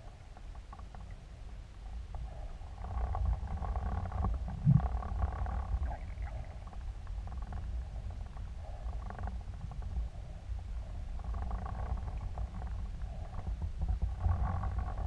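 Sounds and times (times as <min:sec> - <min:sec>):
low rumble of moving water: 0:00.0 - 0:15.0
underwater crackling: 0:02.3 - 0:08.8.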